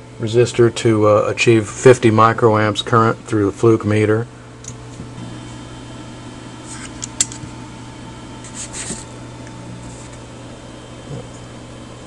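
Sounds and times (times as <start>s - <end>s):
low electrical hum: 0.0s - 12.0s
sharp click: 6.9s - 7.4s.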